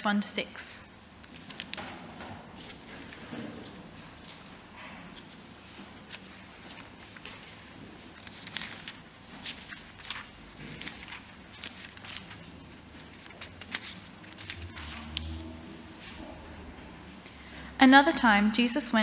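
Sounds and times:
low hum: 14.3 - 17.2.

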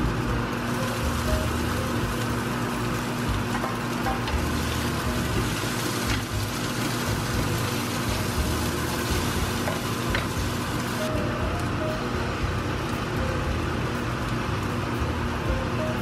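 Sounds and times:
steady low hum: 0.0 - 16.0
fish and onions sizzling in a pan: 0.1 - 11.1.

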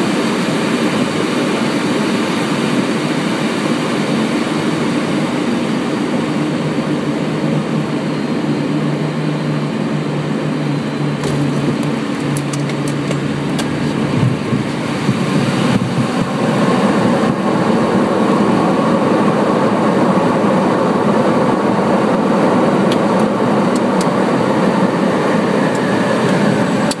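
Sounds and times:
aircraft engine drone: 0.0 - 27.0
rushing runway rumble: 0.0 - 27.0.

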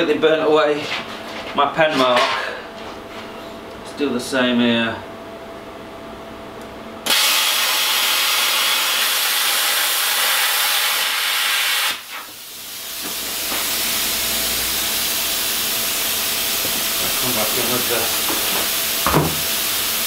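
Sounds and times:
plasma cutter hissing: 7.0 - 20.0.

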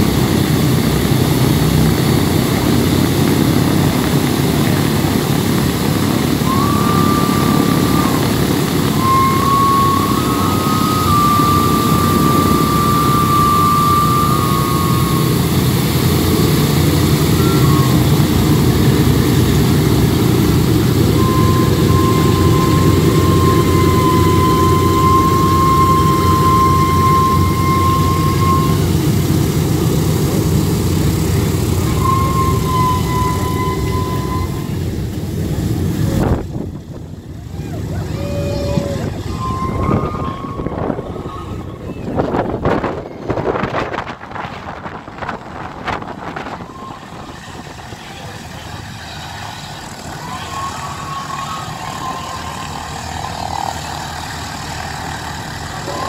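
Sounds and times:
aircraft engines droning: 0.0 - 56.0
thin high whine: 0.0 - 56.0.

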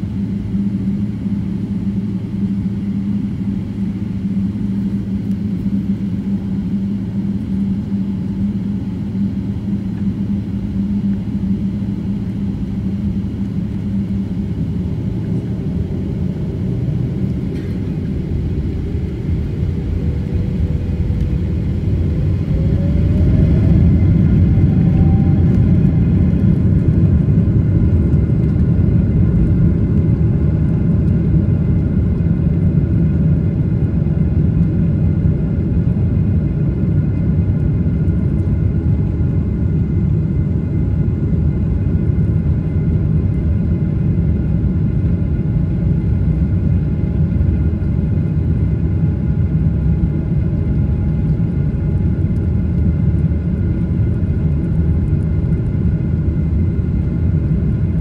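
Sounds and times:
steady whining tones: 0.0 - 34.7
jet engines droning: 0.0 - 58.0
low cabin rumble: 0.0 - 58.0.

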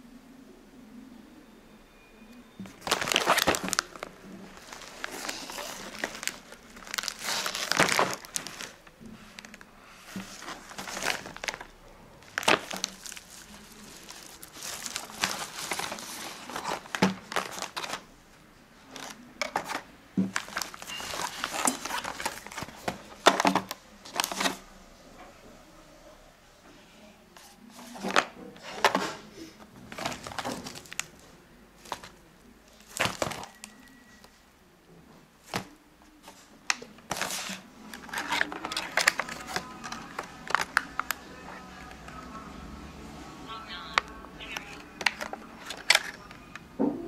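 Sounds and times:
plastic bag crinkling: 2.6 - 18.1, 18.9 - 24.6, 29.8 - 34.2, 35.4 - 42.3, 43.8 - 46.6.

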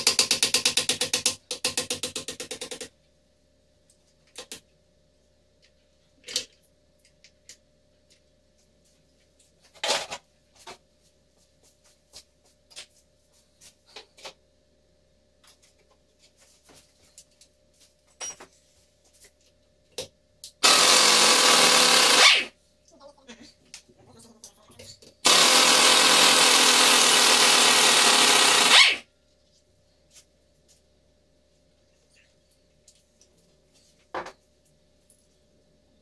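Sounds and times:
pneumatic wrench running: 20.6 - 22.5, 25.2 - 29.0.

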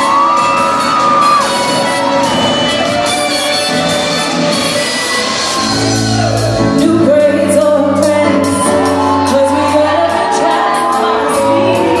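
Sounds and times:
pop song with women singing: 6.6 - 12.0.

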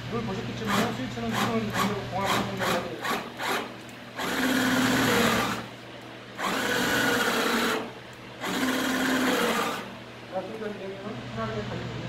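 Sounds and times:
electric motor whining: 1.4 - 5.7, 6.4 - 9.9.

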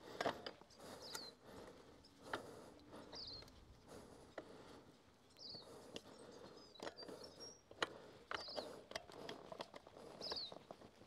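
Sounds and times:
bird chirps: 3.1 - 3.5.

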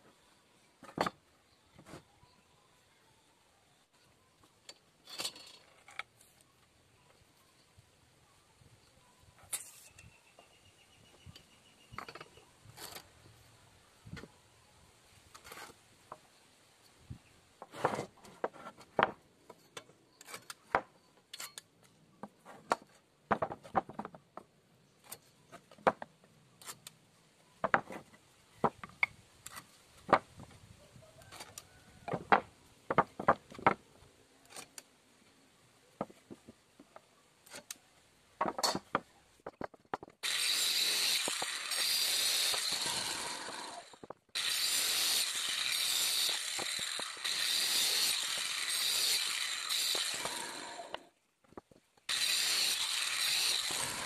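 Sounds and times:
wooden boards knocking and clattering: 0.8 - 1.2, 17.6 - 19.2, 22.2 - 24.5, 25.6 - 26.1, 27.6 - 29.0, 30.0 - 30.5, 32.1 - 33.9, 38.4 - 40.2
power tool running: 40.2 - 51.0, 52.1 - 54.0.

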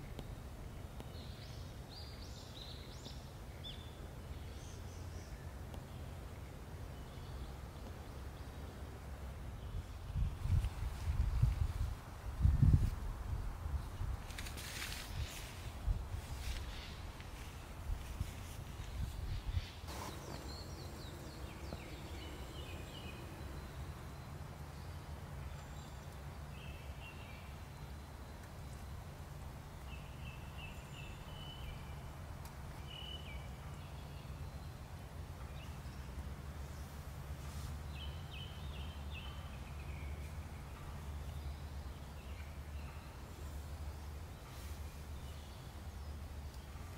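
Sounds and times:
small birds chirping: 16.3 - 29.1
low rumble: 19.9 - 24.5.

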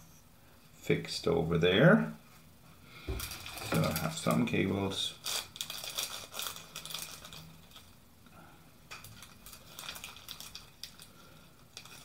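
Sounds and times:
plastic bag crinkling: 3.1 - 8.0, 8.9 - 12.0.

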